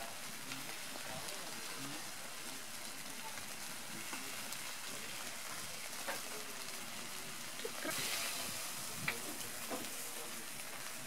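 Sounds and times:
fish sizzling over charcoal: 0.0 - 11.0.

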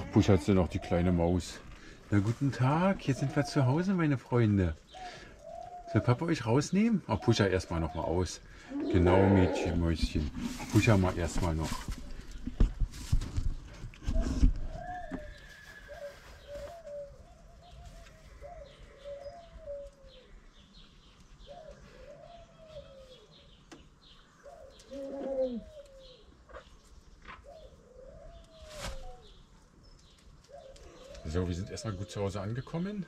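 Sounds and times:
pigeon cooing: 7.2 - 9.8, 14.0 - 20.4, 21.4 - 23.6, 24.4 - 26.7, 27.3 - 29.4, 30.5 - 32.2.

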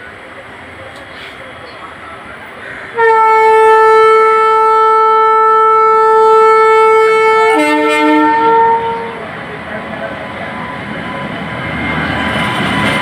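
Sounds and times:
locomotive horn blast: 2.9 - 9.3.

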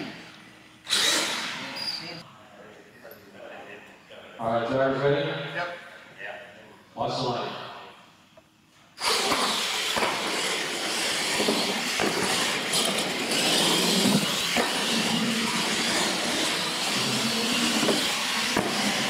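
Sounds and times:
toy truck motors whirring: 0.9 - 1.5, 9.0 - 19.0.

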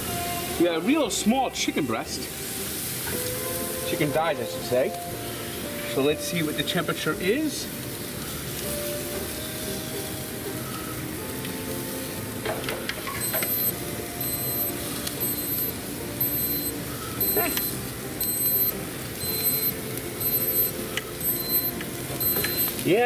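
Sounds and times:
steady hiss: 0.0 - 23.0
short high beeps: 13.2 - 22.8.

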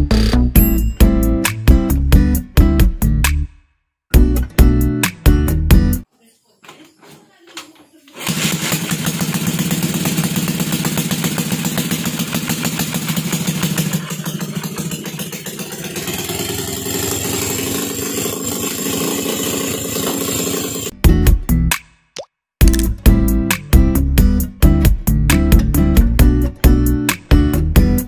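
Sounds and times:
motorcycle engine running: 8.2 - 20.9.

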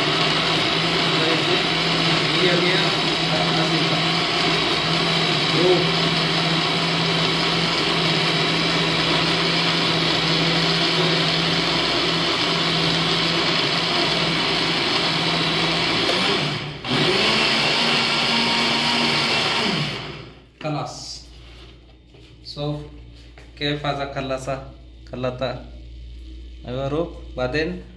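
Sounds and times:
blender motor running: 0.0 - 20.5.

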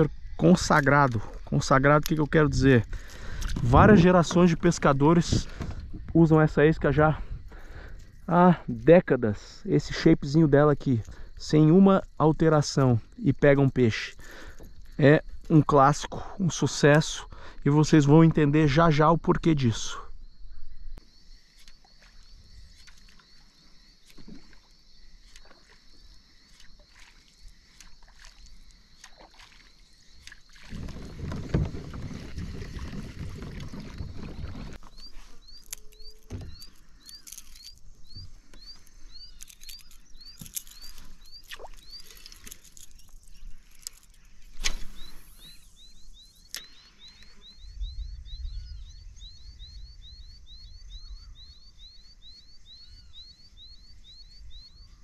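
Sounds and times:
high chirping call: 34.8 - 55.0.

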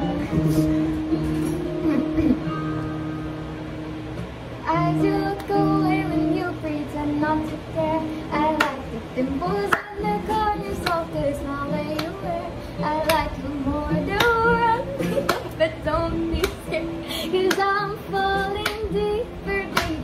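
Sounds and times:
instrumental backing track: 0.0 - 20.0
woman singing pop ballad: 4.6 - 20.0.

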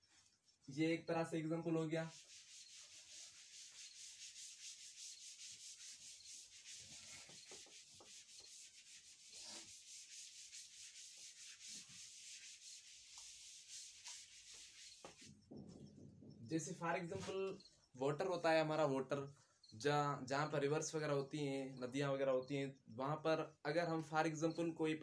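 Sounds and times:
duster rubbing blackboard: 1.9 - 15.8.

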